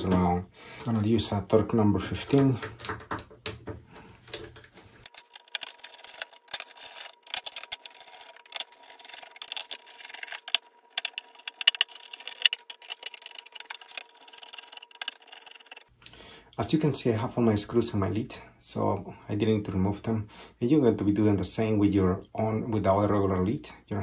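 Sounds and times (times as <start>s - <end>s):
screwdriver scraping: 4.3s - 15.9s.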